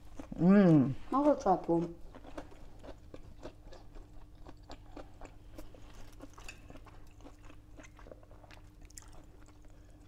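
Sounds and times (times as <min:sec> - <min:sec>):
faint steady hum: 0:00.0 - 0:10.0
crunchy chewing: 0:02.0 - 0:10.0.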